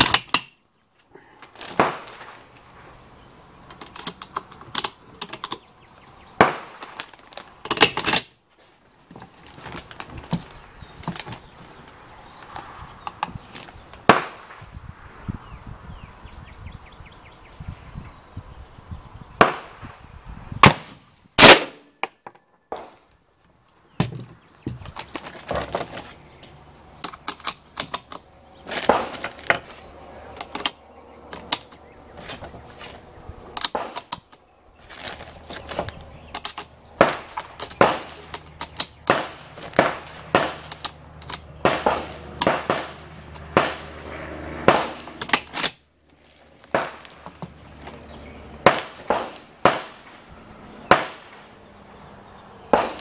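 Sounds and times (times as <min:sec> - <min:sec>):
rifle shots: 0:01.7 - 0:02.4, 0:06.4 - 0:07.0, 0:14.0 - 0:14.6, 0:20.6 - 0:21.9, 0:37.0 - 0:40.9, 0:41.6 - 0:45.7, 0:46.7 - 0:47.1, 0:48.6 - 0:50.3, 0:50.9 - 0:51.5, 0:52.7 - 0:53.0.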